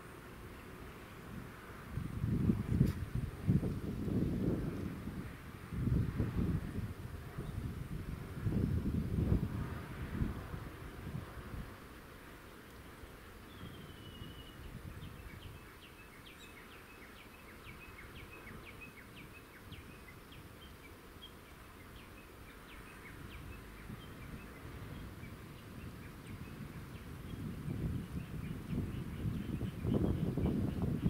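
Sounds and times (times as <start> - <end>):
low outdoor background noise: 0.0 - 31.0
small birds chirping: 12.5 - 31.0.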